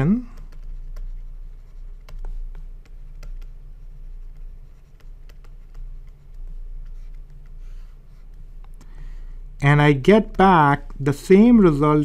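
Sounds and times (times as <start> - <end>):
steady low hum: 0.0 - 12.0
stylus tapping on tablet: 1.9 - 7.6.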